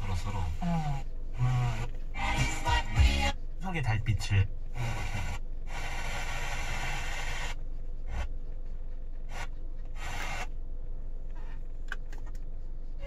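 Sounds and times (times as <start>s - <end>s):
radio static bursts: 0.0s - 8.3s, 9.3s - 10.5s
engine idling hum: 0.0s - 13.0s.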